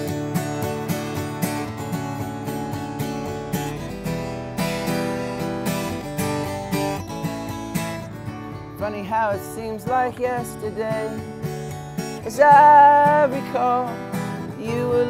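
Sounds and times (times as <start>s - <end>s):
acoustic guitar strumming chords: 0.0s - 15.0s.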